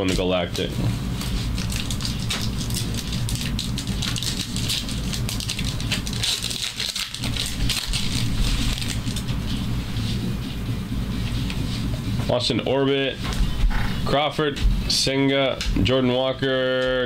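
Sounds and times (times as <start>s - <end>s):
card pack wrappers tearing: 1.2s - 9.3s.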